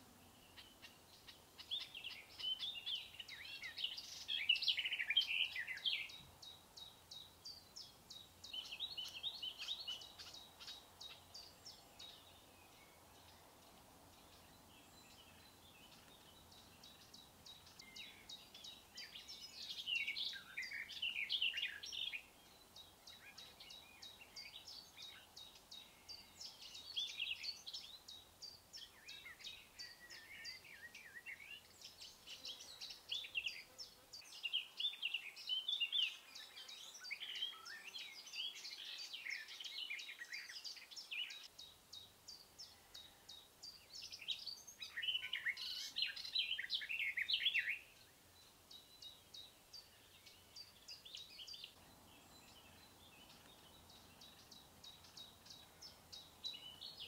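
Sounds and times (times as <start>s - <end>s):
birds twittering song: 0.0s - 57.0s.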